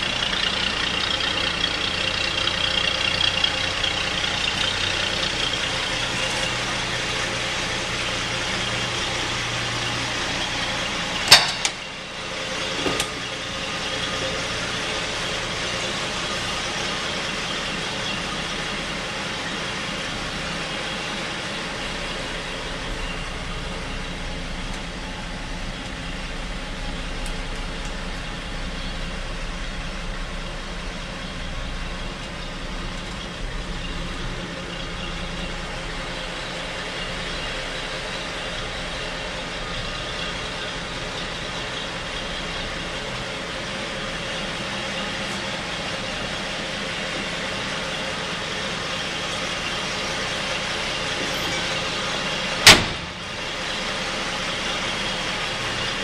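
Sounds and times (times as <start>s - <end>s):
truck door slamming: 52.6s - 53.3s.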